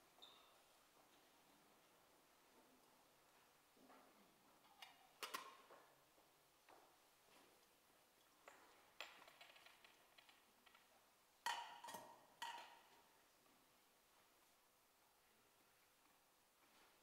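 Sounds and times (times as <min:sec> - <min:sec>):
metal vessels clinking: 0:11.4 - 0:12.9.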